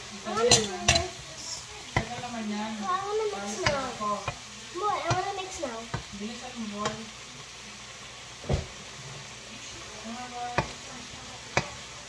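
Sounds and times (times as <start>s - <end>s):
food sizzling in a wok: 0.0s - 12.0s
spatulas knocking against pan: 1.9s - 2.4s, 3.5s - 4.4s, 5.0s - 6.1s, 6.8s - 7.1s, 10.5s - 10.8s, 11.5s - 11.8s.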